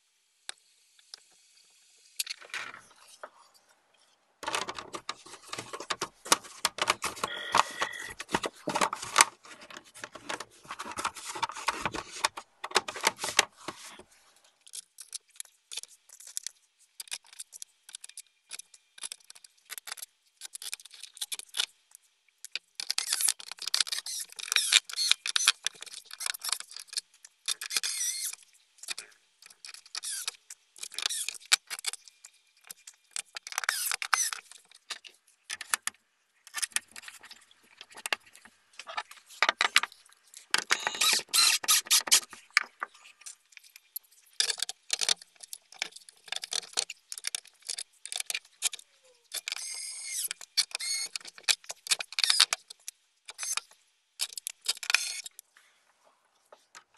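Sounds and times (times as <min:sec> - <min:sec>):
hard plastic clicks and scrapes: 0:04.4 - 0:21.7, 0:44.4 - 0:55.4.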